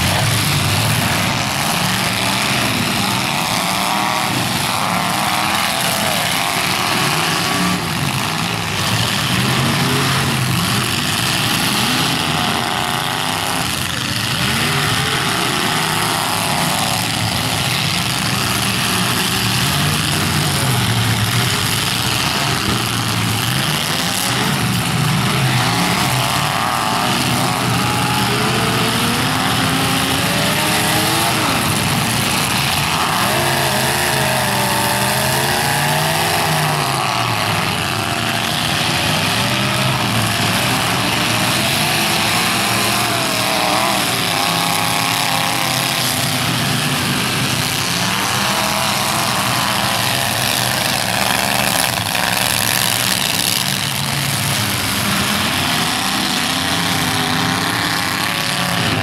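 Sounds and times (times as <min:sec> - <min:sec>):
truck engines revving: 0:00.0 - 0:59.0.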